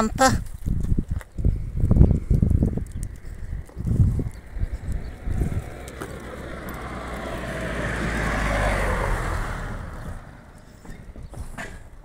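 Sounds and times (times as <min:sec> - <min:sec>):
car driving past: 0:03.6 - 0:11.2.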